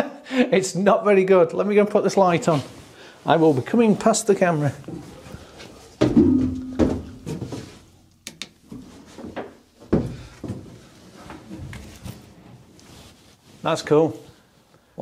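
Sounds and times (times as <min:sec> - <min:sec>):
knocks and bumps of person moving: 0:06.0 - 0:07.8, 0:08.7 - 0:12.2.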